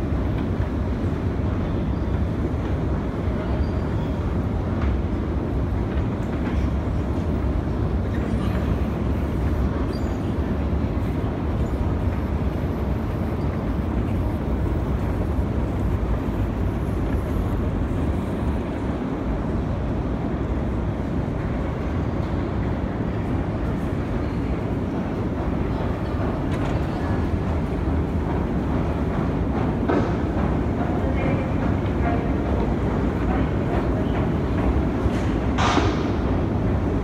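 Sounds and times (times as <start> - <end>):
escalator machinery rumble: 0.0 - 37.0.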